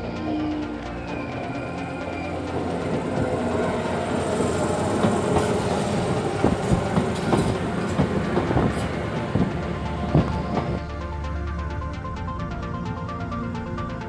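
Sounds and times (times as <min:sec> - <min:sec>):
electric train passing: 0:00.0 - 0:14.0
wheels clacking over rail joints: 0:01.8 - 0:10.8.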